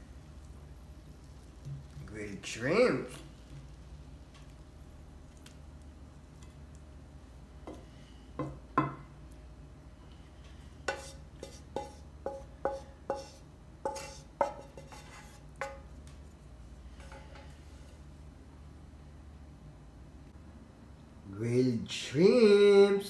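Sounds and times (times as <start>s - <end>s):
spatula tapping frying pan: 10.9s - 15.9s.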